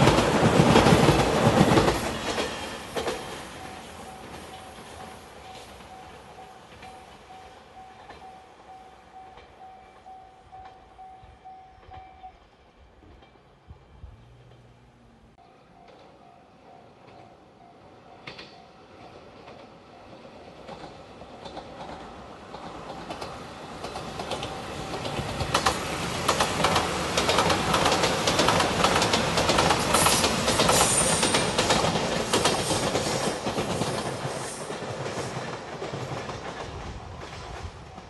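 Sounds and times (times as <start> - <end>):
wheels clacking over rail joints: 0.0 - 8.3, 18.2 - 38.0
train passing: 0.0 - 38.0.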